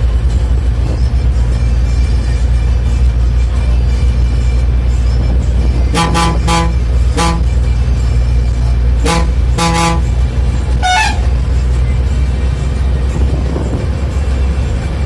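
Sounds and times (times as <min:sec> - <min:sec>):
bus engine drone: 0:00.0 - 0:15.0
bus horn tooting: 0:05.2 - 0:08.2, 0:08.8 - 0:11.7
higher-pitched horn toot: 0:05.9 - 0:07.7, 0:09.0 - 0:10.2, 0:10.8 - 0:11.4.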